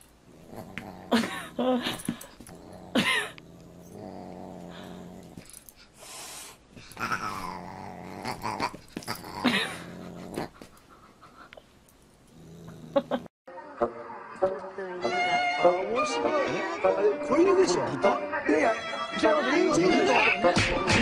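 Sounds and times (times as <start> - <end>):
dog growling: 0.3 - 5.7, 6.9 - 10.8, 12.3 - 13.3.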